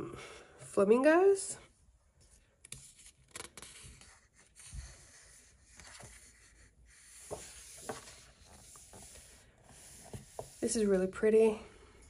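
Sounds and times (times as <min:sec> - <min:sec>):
paper page rustling: 0:02.7 - 0:10.7
hands pressing pages flat: 0:07.1 - 0:10.6.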